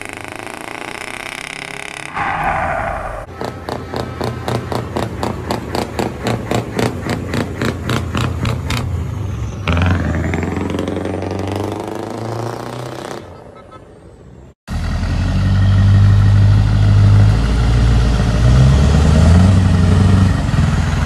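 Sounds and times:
diesel truck engine pulsing: 0:00.0 - 0:21.0.

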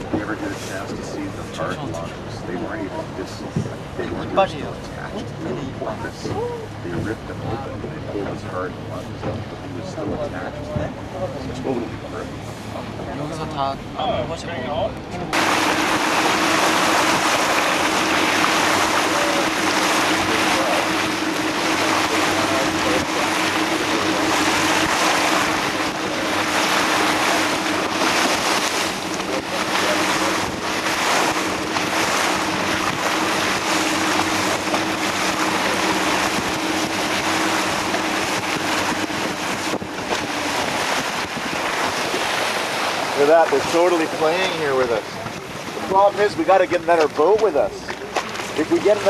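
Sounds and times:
boat engine hum: 0:00.0 - 0:49.0
water rushing along hull: 0:00.0 - 0:49.0
wind buffeting microphone: 0:15.3 - 0:47.3.

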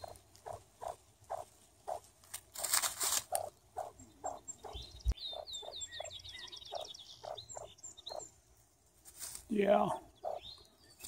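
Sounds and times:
grouse giving soft clucks: 0:00.0 - 0:06.1, 0:09.8 - 0:10.5
songbird singing descending notes: 0:03.8 - 0:08.4.

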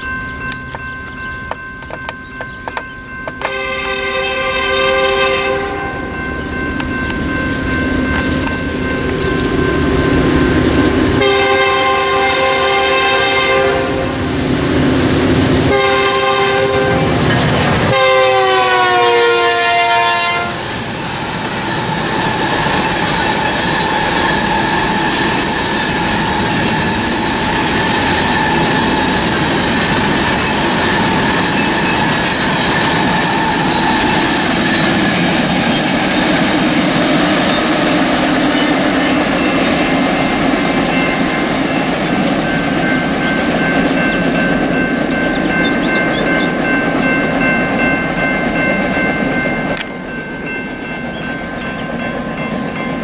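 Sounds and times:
train cars rolling past: 0:00.0 - 0:53.0
locomotive air horn blasts: 0:03.4 - 0:06.1, 0:11.2 - 0:14.2, 0:15.7 - 0:17.2, 0:17.9 - 0:20.7.

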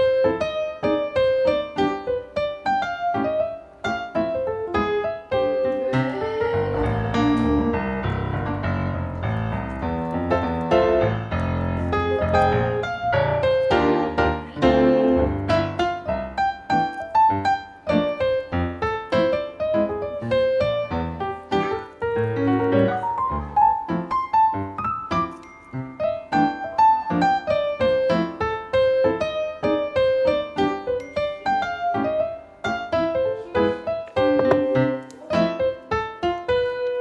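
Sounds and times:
light piano tune: 0:00.0 - 0:37.0
bass line: 0:06.3 - 0:12.7.

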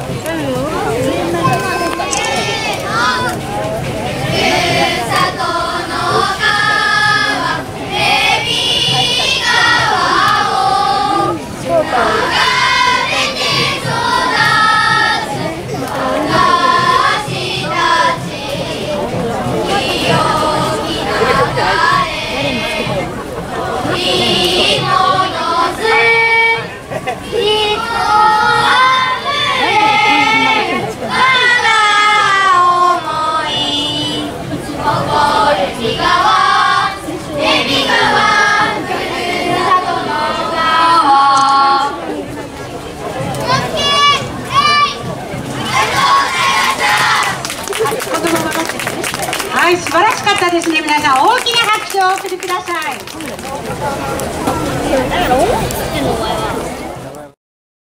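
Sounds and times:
children singing in chorus: 0:01.0 - 0:42.3, 0:43.2 - 0:47.5.

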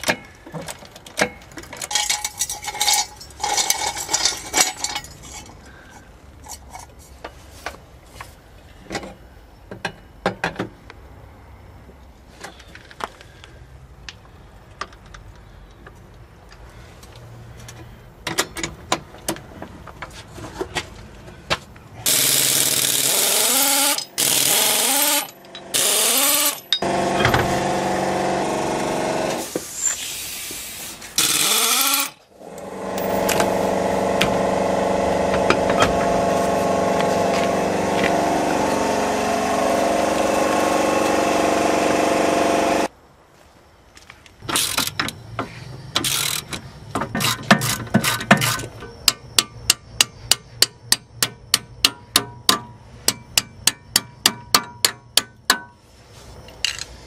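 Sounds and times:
hand tools clicking and knocking: 0:00.0 - 0:07.4, 0:22.1 - 0:27.7, 0:31.2 - 0:41.2, 0:44.4 - 0:55.8, 0:56.5 - 0:57.0
impact wrench whirring: 0:22.1 - 0:29.5, 0:31.2 - 0:42.9.

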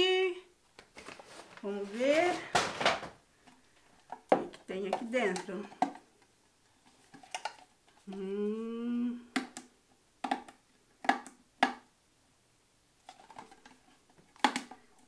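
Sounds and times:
woman humming: 0:00.0 - 0:00.5, 0:08.0 - 0:09.4.

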